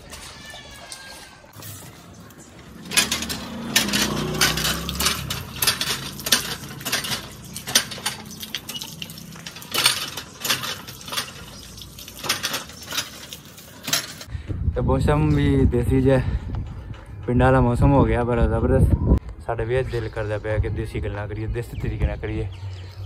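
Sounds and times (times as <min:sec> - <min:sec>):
hand pump handle clanking: 0:00.0 - 0:14.3
water splashing on concrete: 0:02.8 - 0:13.8.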